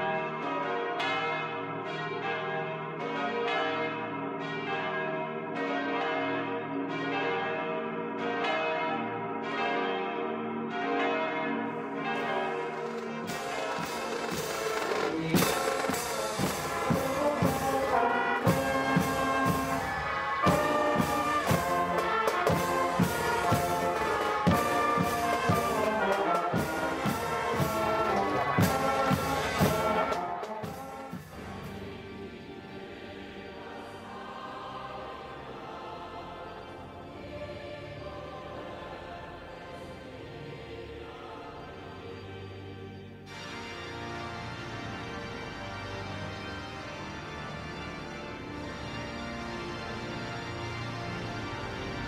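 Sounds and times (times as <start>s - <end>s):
brass music with steady beat: 11.8s - 36.3s, 43.2s - 52.0s.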